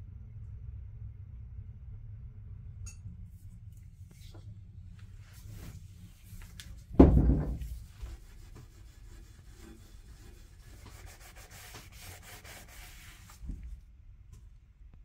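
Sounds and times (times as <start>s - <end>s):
cloth wiping painted metal: 5.2s - 13.8s
heavy thud: 6.9s - 7.9s.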